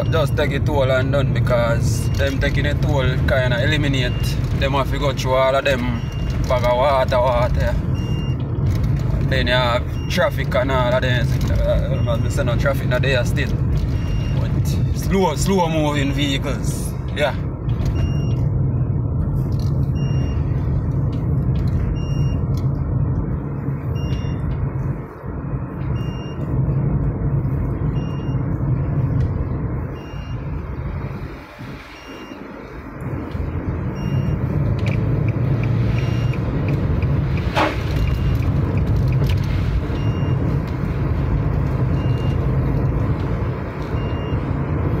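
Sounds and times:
car engine and tyre rumble: 0:00.0 - 0:45.0.

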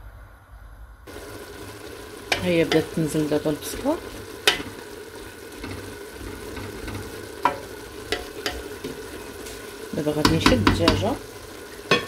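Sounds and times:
onions sizzling in oil: 0:01.1 - 0:12.0
wooden spoon knocking against pot: 0:06.9 - 0:08.9, 0:10.2 - 0:11.1.

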